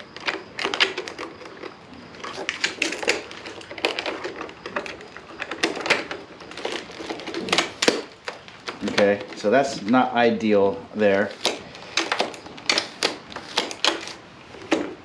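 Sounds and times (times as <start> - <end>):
telescoping handle clicking: 11.2 - 15.0.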